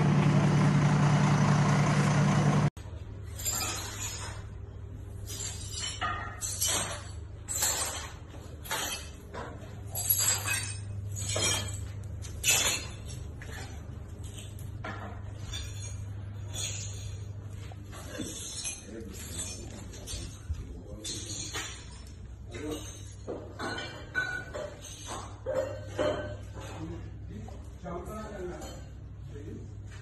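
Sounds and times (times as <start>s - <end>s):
fire engine motor rumbling: 0.0s - 2.8s.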